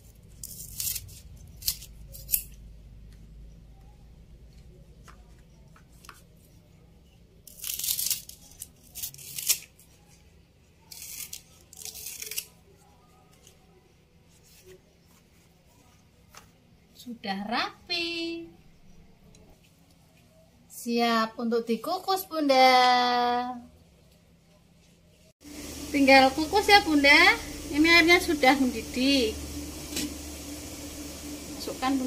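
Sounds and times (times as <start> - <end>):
scissors snipping leaf: 0.4 - 2.6, 7.5 - 9.8, 10.9 - 12.5.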